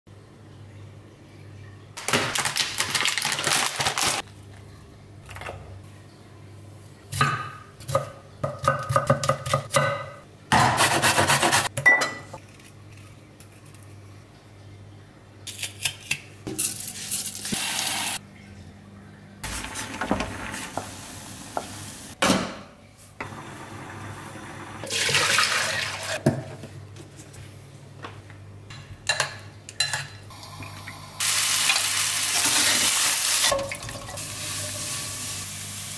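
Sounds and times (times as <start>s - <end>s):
plastic packet crinkling: 2.0s - 4.3s.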